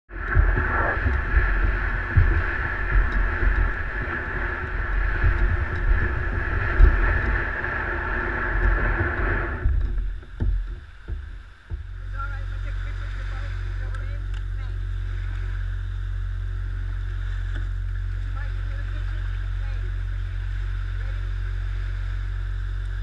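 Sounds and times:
kayak scraping across sand: 0:00.1 - 0:15.9.

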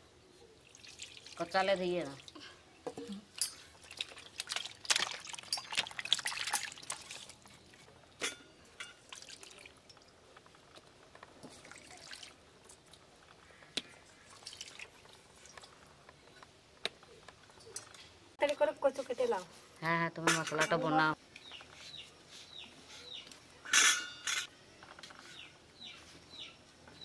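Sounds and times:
water splashing in steel plate: 0:03.3 - 0:07.4, 0:14.2 - 0:15.0.

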